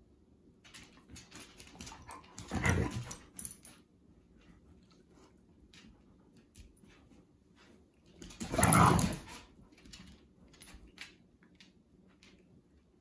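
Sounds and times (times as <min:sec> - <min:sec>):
claws clicking on tile floor: 0:00.6 - 0:03.8, 0:08.1 - 0:12.8.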